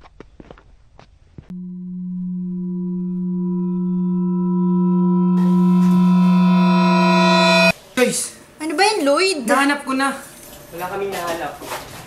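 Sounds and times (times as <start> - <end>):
suspense synth drone: 1.5 - 7.7
shimmering synth layer: 1.6 - 7.7.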